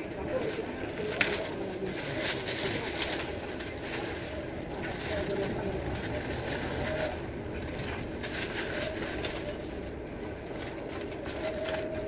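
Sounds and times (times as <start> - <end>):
motorbike traffic hum: 0.0 - 12.0.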